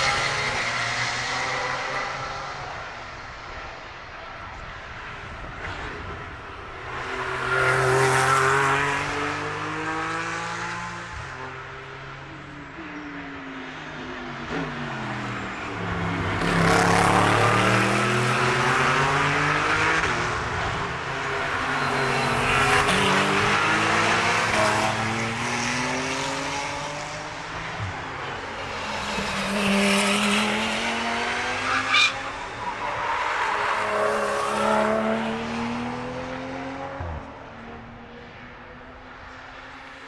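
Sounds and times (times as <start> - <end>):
race cars passing at speed: 0.0 - 40.0.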